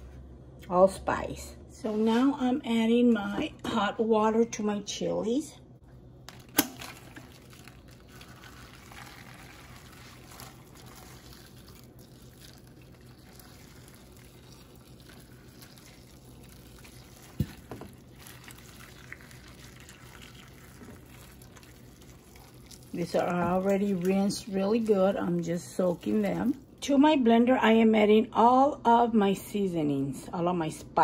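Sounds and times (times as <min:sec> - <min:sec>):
water pouring and splashing: 0:06.3 - 0:26.7.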